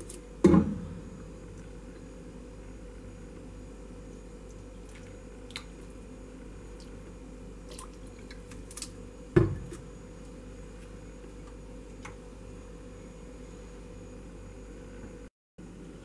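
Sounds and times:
steady low hum: 0:00.0 - 0:16.0
small wet liquid sounds: 0:04.4 - 0:09.0.

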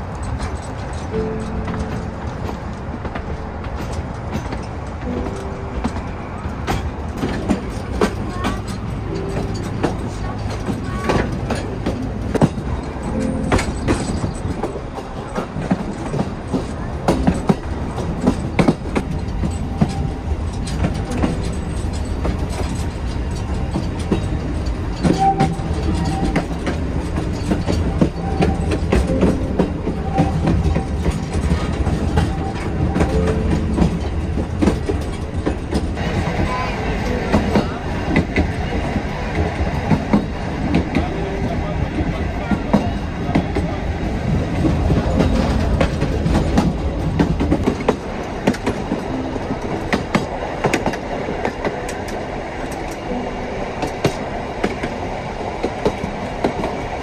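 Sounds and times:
carriages clicking and creaking: 0:00.0 - 0:57.0
train wheels rumbling on rail: 0:00.0 - 0:57.0.

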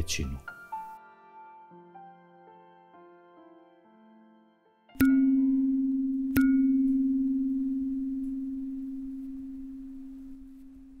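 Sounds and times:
low bell-like tone: 0:05.0 - 0:11.0.

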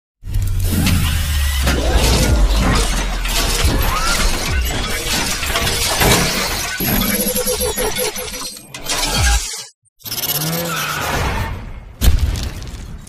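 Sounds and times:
deep rumble: 0:00.4 - 0:05.7
glass shattering crashes: 0:01.8 - 0:07.1.

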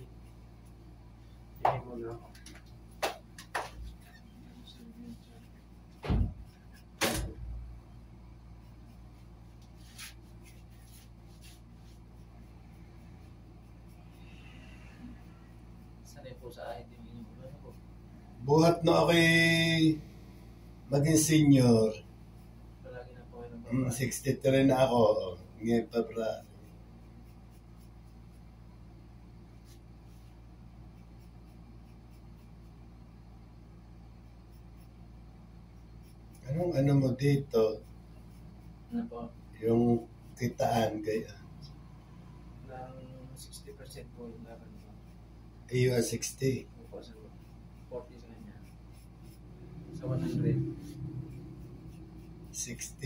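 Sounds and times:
steady low hum: 0:00.0 - 0:53.0
razor scraping scalp: 0:08.6 - 0:16.2, 0:23.6 - 0:28.6, 0:29.5 - 0:32.9, 0:34.1 - 0:38.9, 0:39.6 - 0:41.8, 0:43.4 - 0:53.0.

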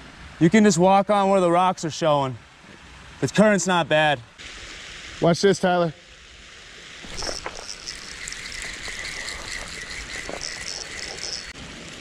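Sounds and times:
flowing water: 0:00.0 - 0:12.0
fishing reel whirring: 0:07.0 - 0:11.6.

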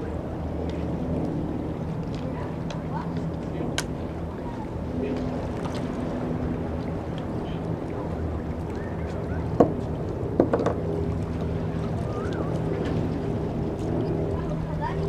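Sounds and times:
boat engine idling: 0:00.0 - 0:15.0
water noise: 0:00.0 - 0:15.0
wind: 0:00.0 - 0:15.0
sharp knocks: 0:10.4 - 0:10.8.

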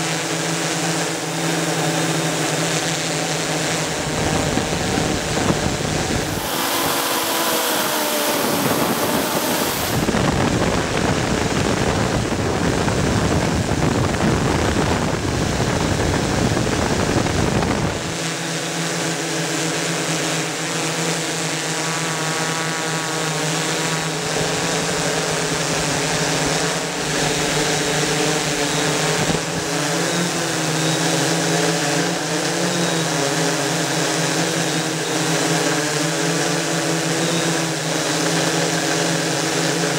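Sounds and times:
drone propellers whirring: 0:00.0 - 0:39.9
wind rushing over microphone: 0:03.2 - 0:18.2, 0:24.0 - 0:30.1.

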